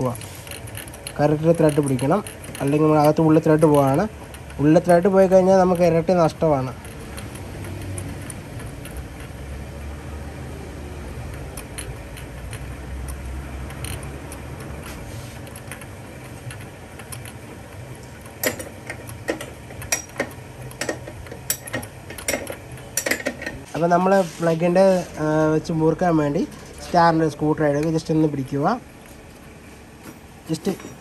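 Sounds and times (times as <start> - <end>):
spanner clinking against metal: 0.0 - 10.0, 11.1 - 23.7, 30.0 - 31.0.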